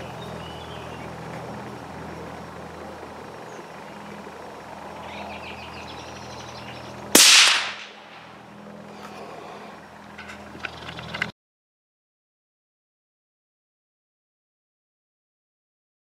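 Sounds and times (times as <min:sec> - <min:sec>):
rifle shot crack: 0:07.2 - 0:08.4.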